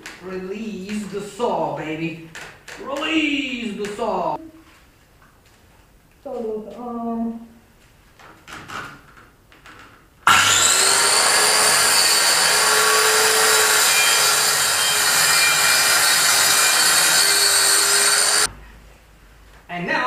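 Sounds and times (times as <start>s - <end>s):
circular saw cutting plywood: 10.3s - 18.5s.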